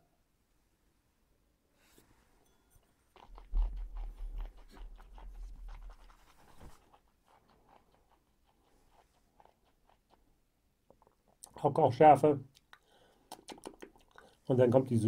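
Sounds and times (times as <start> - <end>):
wet mouth smacking: 3.1 - 11.6, 12.5 - 14.5
tongue clicks: 12.5 - 14.4.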